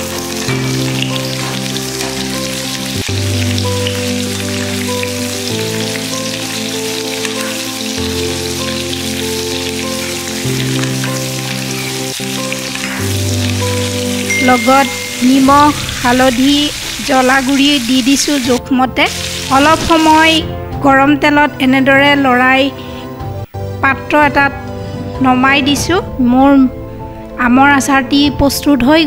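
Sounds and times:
mango pieces sizzling in oil: 0.0s - 20.7s
background music with held chords: 0.0s - 29.0s.

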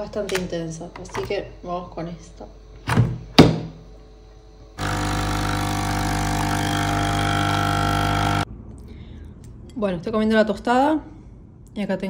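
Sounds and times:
coffee machine pump humming: 4.3s - 8.5s.

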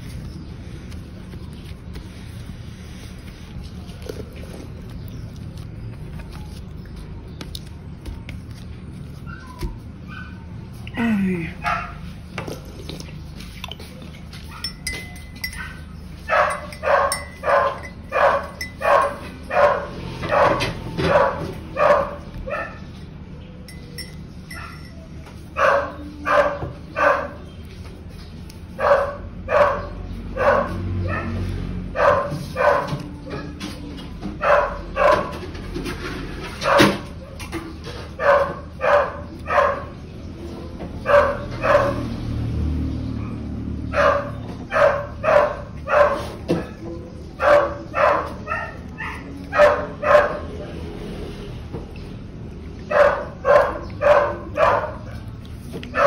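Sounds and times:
dog barking: 11.6s - 12.1s, 14.4s - 22.9s, 25.6s - 27.4s, 28.8s - 33.6s, 34.4s - 35.4s, 36.6s - 37.1s, 38.1s - 40.0s, 41.0s - 42.1s, 43.1s - 46.8s, 47.4s - 50.6s, 52.9s - 55.3s.

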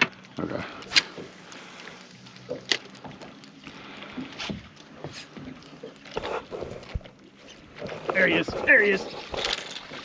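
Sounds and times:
water lapping against boat hull: 0.0s - 10.0s.

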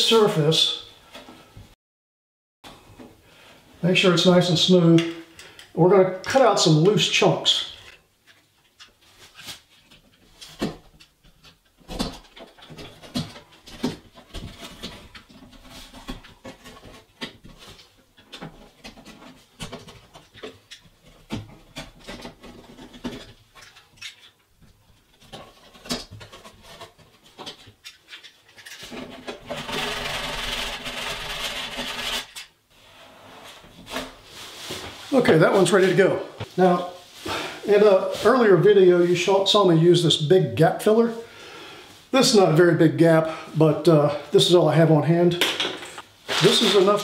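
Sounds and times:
sanding sponge rubbing: 29.6s - 32.3s.

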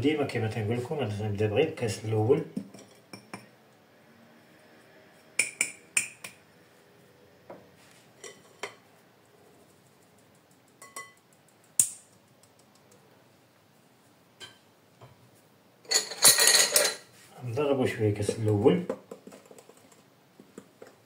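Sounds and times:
metal sieve clinking on glass bowl: 15.9s - 17.0s.

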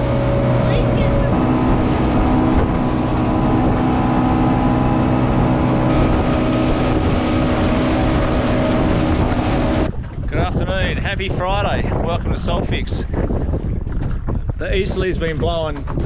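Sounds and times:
water rushing from wake: 0.0s - 11.5s
outboard motor running: 0.0s - 12.2s.

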